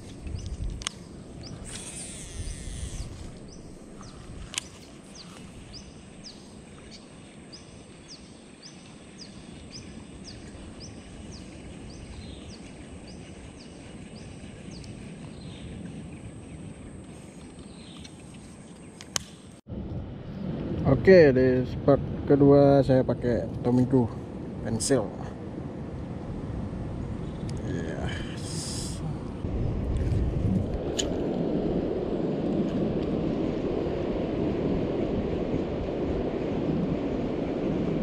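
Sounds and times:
high insect drone: 0:00.1 - 0:18.0
fishing reel spool whirring: 0:01.4 - 0:03.6.

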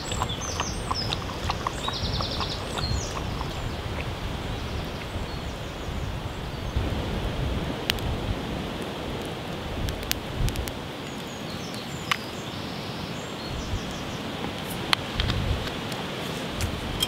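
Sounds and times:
wind buffeting microphone: 0:00.0 - 0:10.9, 0:13.4 - 0:17.0
strong wind through trees: 0:00.0 - 0:17.0
campfire crackles: 0:03.4 - 0:12.7.

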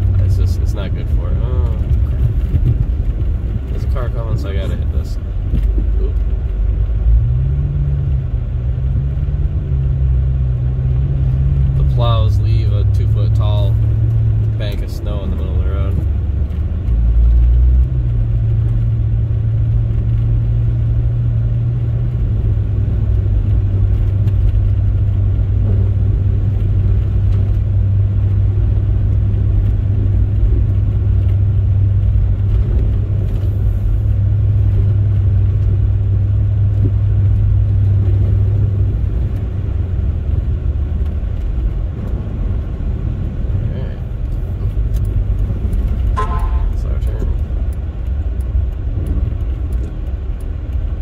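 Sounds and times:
car cabin engine drone: 0:00.0 - 0:51.0
deeper rumble: 0:00.0 - 0:51.0
tyres on snowy road: 0:00.0 - 0:51.0.

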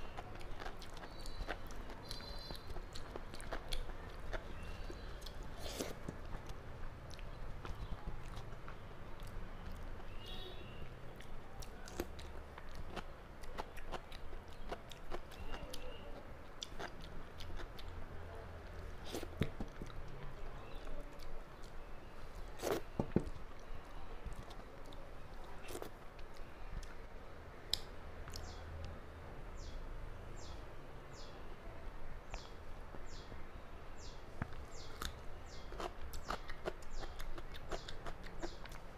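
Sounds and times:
chewing and mouth clicks: 0:00.0 - 0:10.1, 0:11.2 - 0:18.0, 0:34.4 - 0:38.9.

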